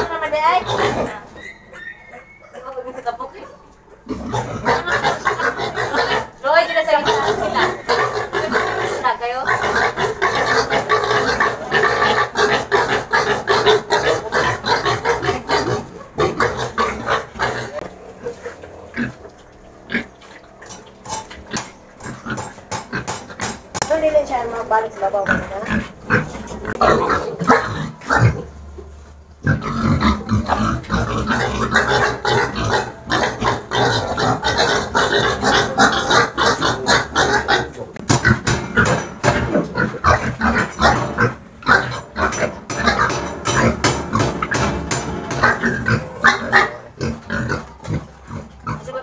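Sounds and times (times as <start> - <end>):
piglets squealing: 0.0 - 3.0, 4.0 - 23.6, 29.4 - 39.0, 44.5 - 49.0.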